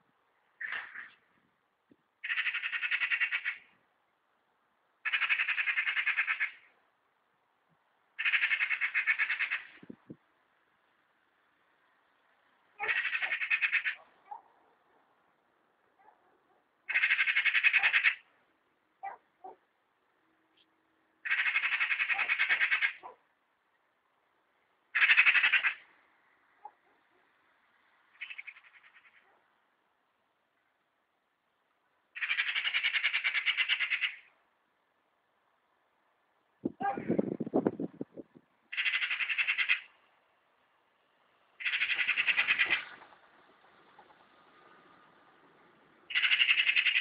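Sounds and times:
magpie chattering: 0:02.2 - 0:03.7, 0:05.0 - 0:06.7, 0:08.2 - 0:09.8, 0:12.8 - 0:14.0, 0:16.9 - 0:18.3, 0:21.2 - 0:23.1, 0:25.0 - 0:25.8, 0:28.2 - 0:29.2, 0:32.2 - 0:34.3, 0:38.7 - 0:39.9, 0:41.6 - 0:42.9, 0:46.1 - 0:47.0.

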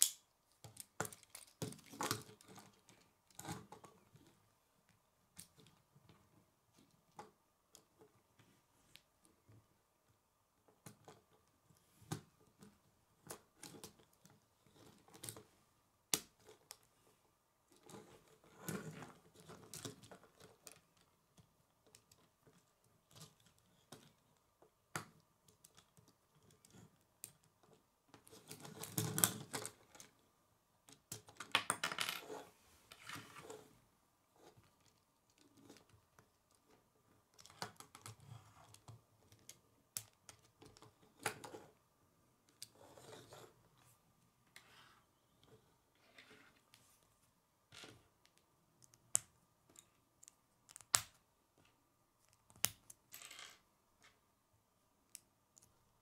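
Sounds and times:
plastic pieces clicking and rattling: 0:00.0 - 0:03.6.

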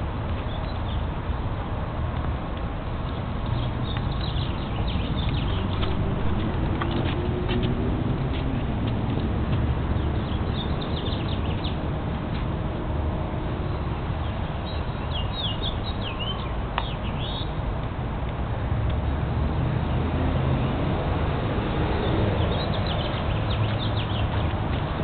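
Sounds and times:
small birds chirping: 0:00.4 - 0:01.1, 0:03.0 - 0:11.9, 0:13.7 - 0:17.6, 0:22.0 - 0:25.0
steady low rumble: 0:02.2 - 0:10.5.

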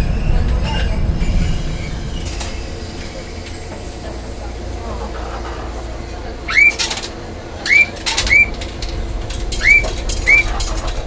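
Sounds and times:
low steady tram hum: 0:00.0 - 0:11.0
bird chirping: 0:06.5 - 0:06.8, 0:09.6 - 0:10.8.

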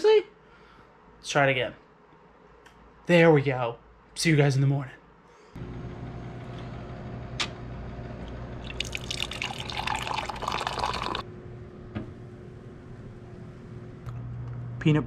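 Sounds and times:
steady low hum: 0:05.6 - 0:15.0
coffee pouring into mug: 0:08.6 - 0:11.2.

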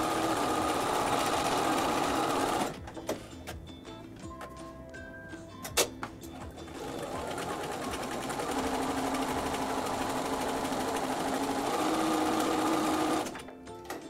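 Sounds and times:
sewing machine stitching: 0:00.0 - 0:02.8, 0:06.7 - 0:13.4.

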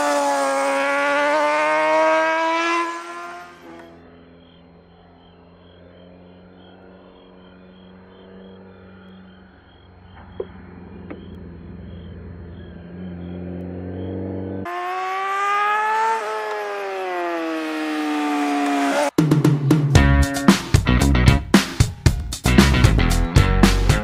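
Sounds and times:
motorcycle engine passing: 0:00.0 - 0:19.7.

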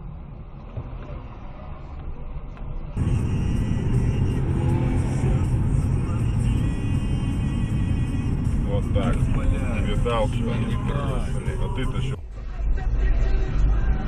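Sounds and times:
car engine and tyre rumble: 0:00.0 - 0:14.0.

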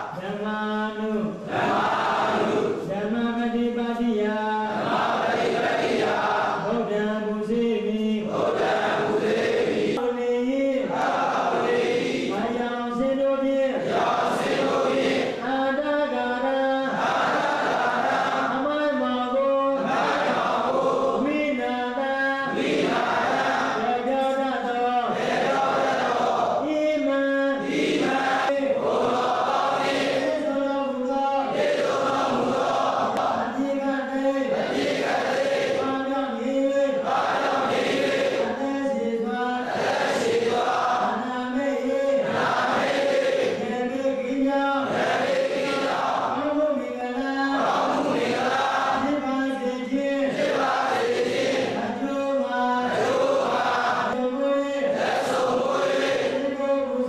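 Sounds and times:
monks chanting in unison: 0:01.2 - 0:03.0, 0:04.5 - 0:06.9, 0:08.2 - 0:10.0, 0:10.7 - 0:12.6, 0:13.6 - 0:18.7, 0:19.7 - 0:21.4, 0:22.4 - 0:24.0, 0:25.0 - 0:26.7, 0:27.5 - 0:30.6, 0:31.4 - 0:36.1, 0:36.8 - 0:46.6, 0:47.2 - 0:49.3, 0:50.1 - 0:52.0, 0:52.7 - 0:54.2, 0:54.8 - 0:56.6.

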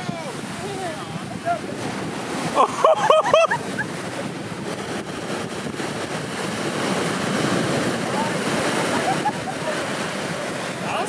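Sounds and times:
surf breaking on beach: 0:00.0 - 0:11.0.

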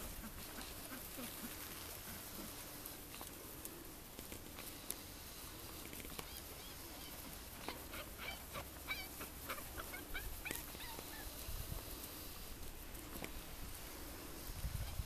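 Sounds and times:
puppies yelping and squeaking: 0:06.1 - 0:11.5.

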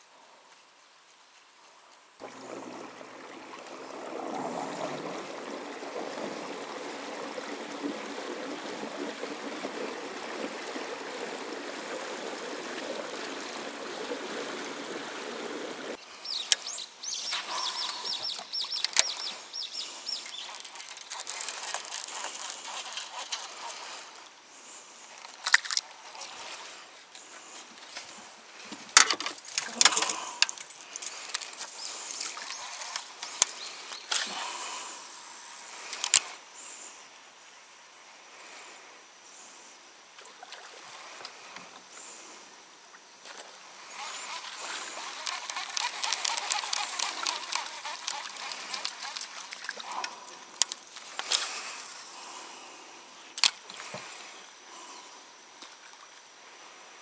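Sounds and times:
water splashing: 0:02.2 - 0:16.0, 0:17.3 - 0:26.8, 0:29.0 - 0:35.0, 0:43.2 - 0:52.3
fishing reel cast and wound: 0:17.3 - 0:24.3, 0:29.0 - 0:34.3, 0:43.9 - 0:51.9
sharp tackle clicks: 0:17.3 - 0:24.3, 0:28.9 - 0:34.3, 0:44.0 - 0:51.5
fishing gear rustling and knocking: 0:17.4 - 0:24.3, 0:25.1 - 0:25.9, 0:27.2 - 0:34.3, 0:44.0 - 0:52.0.

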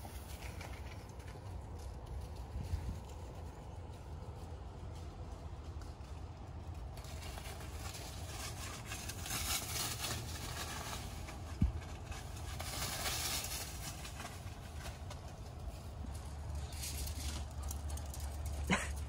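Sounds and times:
rustling hiss: 0:06.9 - 0:18.0.

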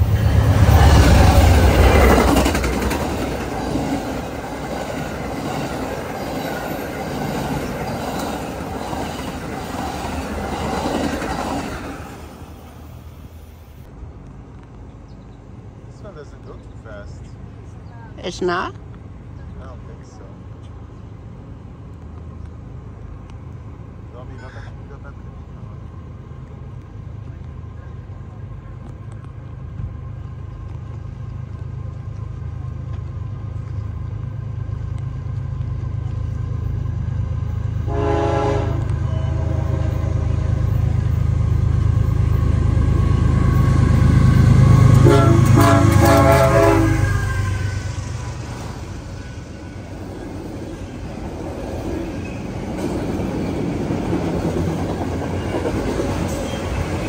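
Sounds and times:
locomotive engine rumble: 0:00.0 - 0:57.0
train cars rolling past: 0:00.0 - 0:57.0
train horn blasts: 0:37.8 - 0:40.8, 0:44.6 - 0:47.9.

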